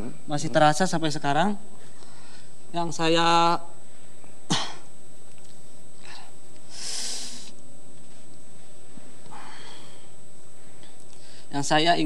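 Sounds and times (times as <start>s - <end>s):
man sniffing and breathing: 6.0s - 7.6s.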